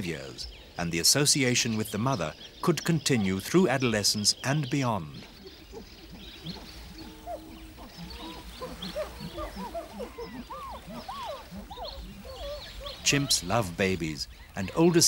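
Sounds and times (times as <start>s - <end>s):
chimpanzees squeaking and whimpering: 5.4s - 13.3s.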